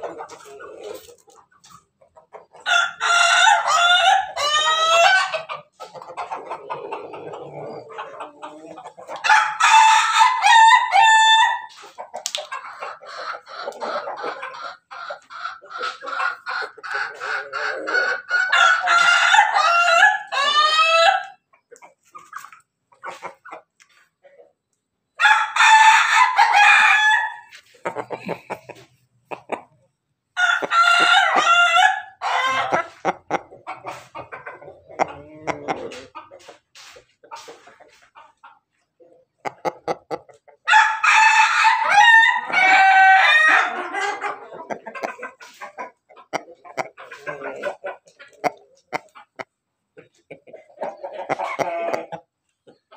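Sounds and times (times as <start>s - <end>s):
chicken clucks: 0.0s - 52.9s
roosters crowing: 2.6s - 5.5s, 9.2s - 11.8s, 17.1s - 21.4s, 25.2s - 28.6s, 30.4s - 33.0s, 40.6s - 45.2s.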